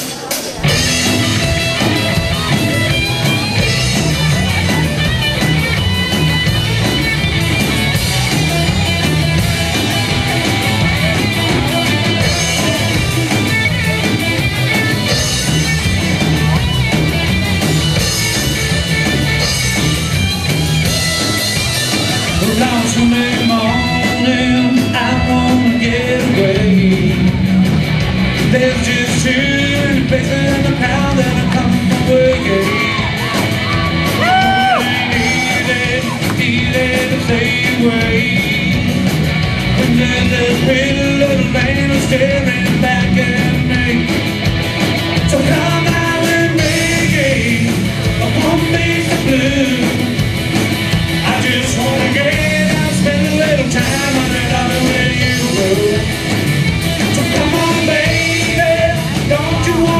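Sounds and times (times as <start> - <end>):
drum kit beat: 0.0 - 59.9
man singing: 21.4 - 27.7, 28.3 - 44.4, 45.1 - 50.4, 51.0 - 59.9.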